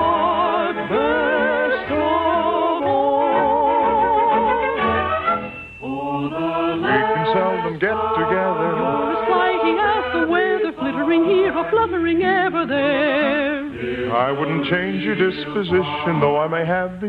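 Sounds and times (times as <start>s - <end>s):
old radio music with vibrato: 0.0s - 17.0s.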